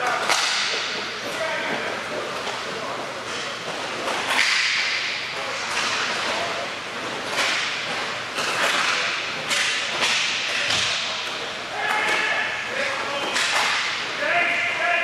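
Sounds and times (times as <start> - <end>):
sticks and puck cracking: 0.2 - 1.4, 4.0 - 6.5, 7.3 - 12.3, 13.1 - 14.0.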